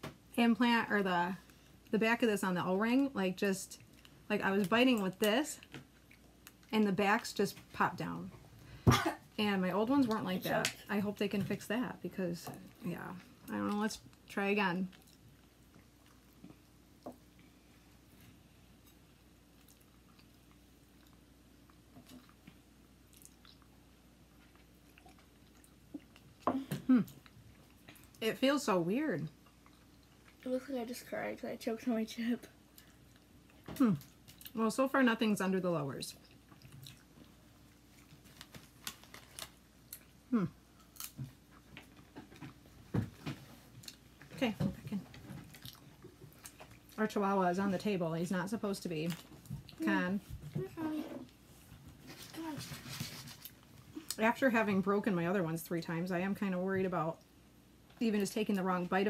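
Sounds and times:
chewing crusty bread: 0:05.6 - 0:06.7, 0:12.6 - 0:28.2, 0:29.2 - 0:30.5, 0:36.1 - 0:47.0
faint biting and chewing: 0:18.8 - 0:26.4.

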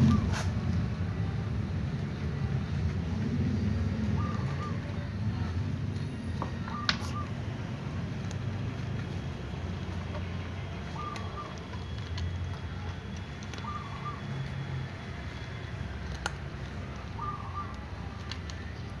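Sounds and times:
cats eating dry kibble: 0:00.1 - 0:19.0
whistled call: 0:13.6 - 0:14.4.

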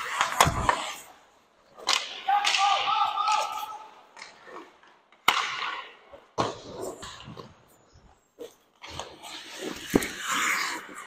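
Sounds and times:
stick and puck clacks: 0:00.0 - 0:07.8, 0:08.4 - 0:11.0
skate blades scraping ice: 0:00.0 - 0:11.0
player shouting: 0:02.2 - 0:03.9.

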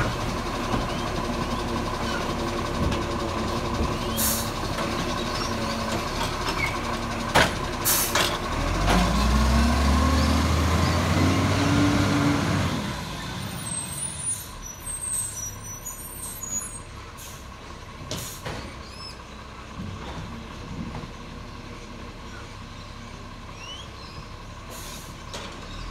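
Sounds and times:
truck engine revving: 0:00.0 - 0:15.8
air brake hisses: 0:04.2 - 0:04.5, 0:24.7 - 0:25.2.

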